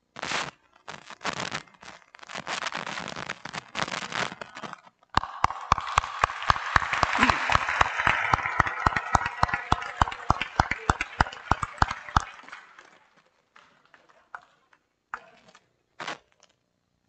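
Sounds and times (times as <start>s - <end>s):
person clapping close to microphone: 5.2s - 14.6s
crowd applause in a large hall: 5.2s - 14.8s.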